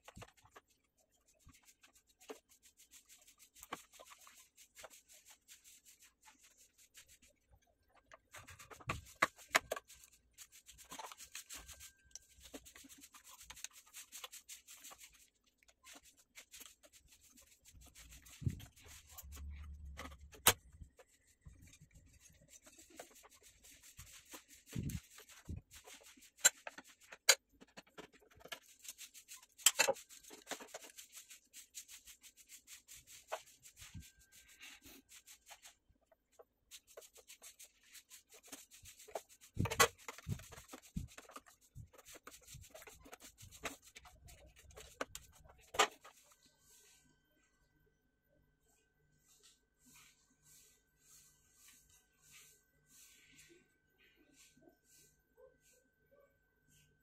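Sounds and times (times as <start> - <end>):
rubbing and scraping of parts: 8.0 - 35.8, 36.4 - 46.4.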